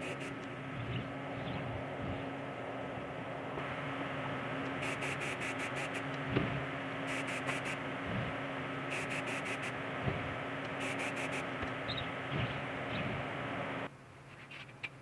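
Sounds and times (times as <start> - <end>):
spray can bursts: 0.0 - 0.3, 4.8 - 6.1, 7.1 - 7.8, 8.9 - 9.8, 10.8 - 11.5
steady hum: 0.0 - 14.0.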